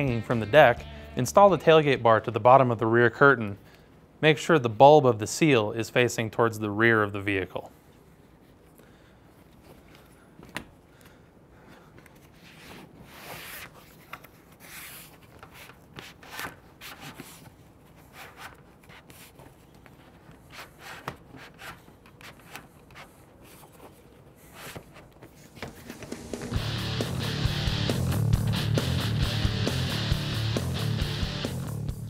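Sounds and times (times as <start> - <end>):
music: 0.0 - 2.0, 25.8 - 32.0
fabric and plastic rubbing: 12.1 - 26.5.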